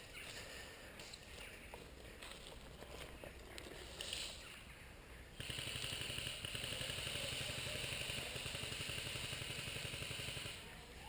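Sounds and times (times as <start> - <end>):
electric gun full-auto rattle: 5.4 - 10.6.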